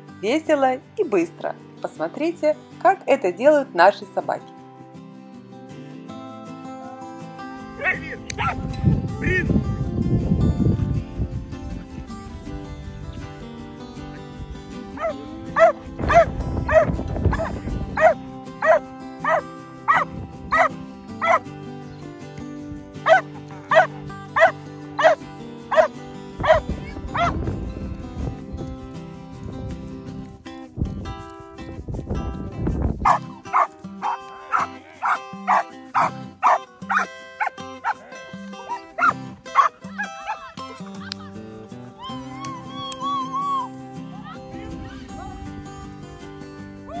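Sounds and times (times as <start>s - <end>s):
background music: 0.0s - 47.0s
dog barking: 8.4s - 8.6s, 15.0s - 21.4s, 23.1s - 26.6s, 33.0s - 38.1s, 38.7s - 40.4s.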